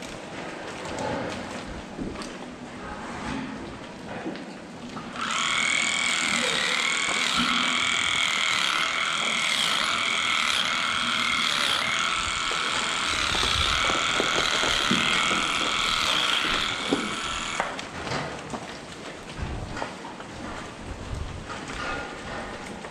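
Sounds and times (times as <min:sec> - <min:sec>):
electric clippers whining: 0:05.1 - 0:17.9.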